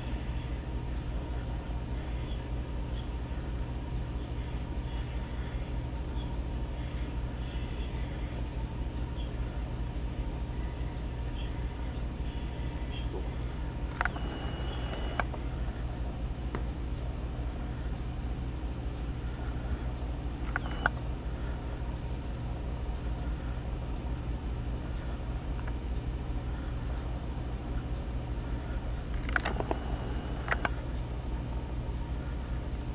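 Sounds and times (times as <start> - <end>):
steady low hum: 0.0 - 32.9
sharp clicks: 13.9 - 15.4, 20.4 - 21.0, 29.1 - 30.8.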